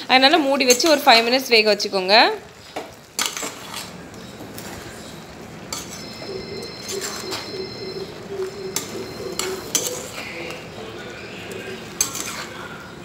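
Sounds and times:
spoon scraping and clinking pan: 0:03.2 - 0:04.0, 0:05.7 - 0:10.7, 0:11.5 - 0:12.6.

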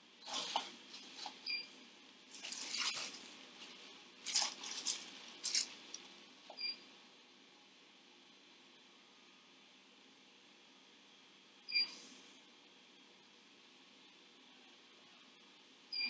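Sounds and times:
stir stick scraping plastic cup: 0:00.2 - 0:01.4, 0:02.3 - 0:06.0.

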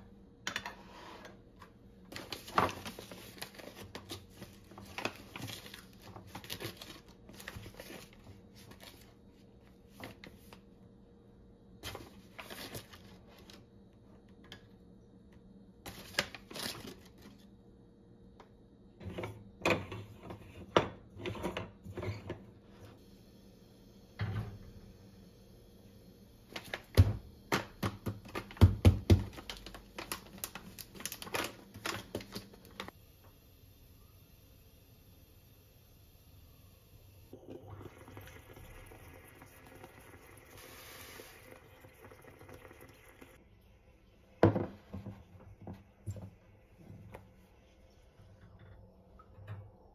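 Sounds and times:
foil bag rustling: 0:02.1 - 0:09.2, 0:15.9 - 0:17.5, 0:28.3 - 0:32.9.

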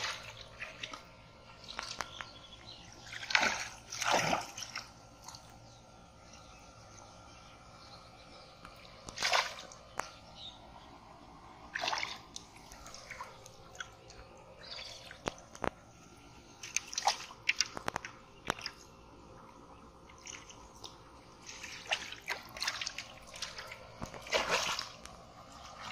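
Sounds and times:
fish thrashing in water: 0:00.0 - 0:05.7, 0:09.0 - 0:10.3, 0:11.5 - 0:15.9, 0:16.5 - 0:19.4, 0:20.0 - 0:25.9
muddy water splashing and sloshing: 0:00.0 - 0:07.0, 0:08.5 - 0:25.9
water dripping: 0:11.8 - 0:15.8, 0:16.6 - 0:25.9.

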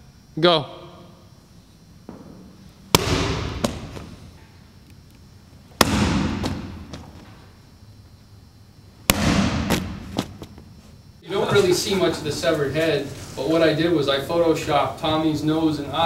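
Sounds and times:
heavy object hitting floor with echo: 0:02.1 - 0:04.1.

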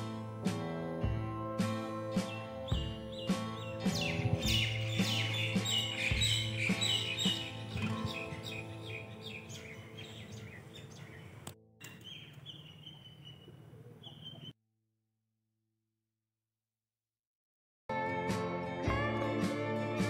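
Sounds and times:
falling bird chirps: 0:02.1 - 0:14.6.

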